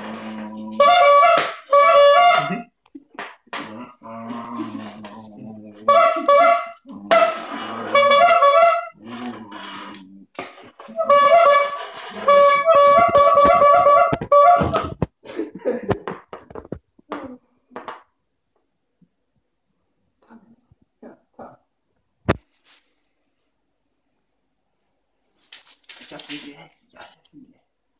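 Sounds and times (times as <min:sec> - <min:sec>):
squeeze horn honking: 0:00.0 - 0:02.7, 0:05.8 - 0:09.1, 0:10.8 - 0:15.0.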